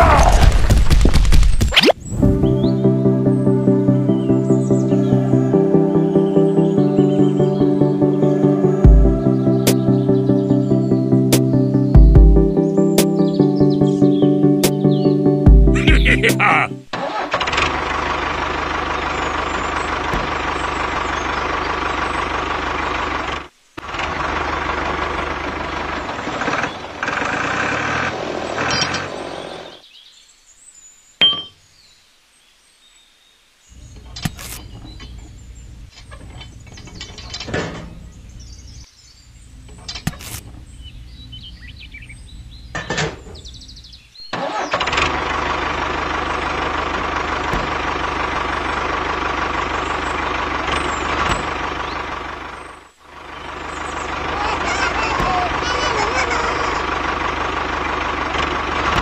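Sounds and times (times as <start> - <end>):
tractor engine running: 2.6 - 29.9, 39.5 - 59.0.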